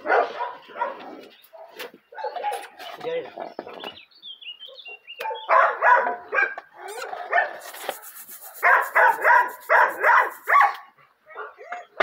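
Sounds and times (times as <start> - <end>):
dog barking: 0.0 - 2.6, 4.9 - 11.9.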